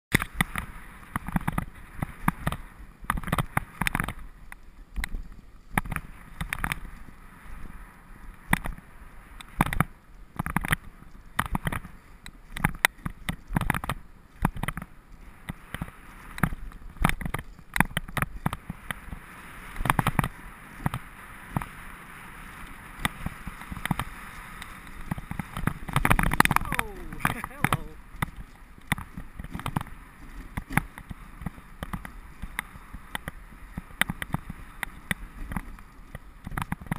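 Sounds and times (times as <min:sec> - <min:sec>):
sled runners hissing over snow: 0:00.2 - 0:36.9
sled knocking and rattling: 0:23.0 - 0:36.9.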